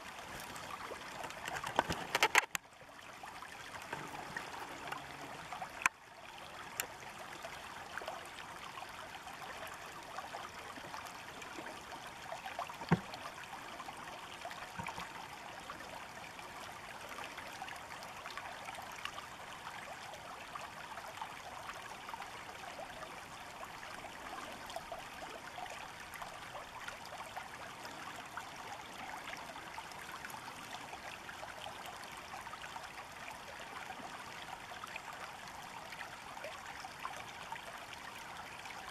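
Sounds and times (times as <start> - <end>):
river running over rocks: 0.0 - 38.9.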